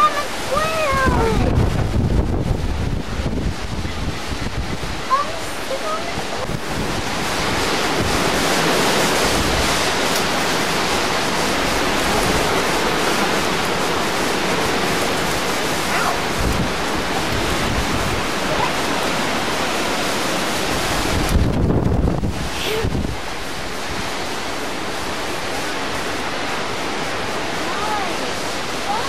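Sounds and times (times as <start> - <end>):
strong wind through trees: 0.0 - 29.0
wind rumbling on microphone: 0.0 - 29.0.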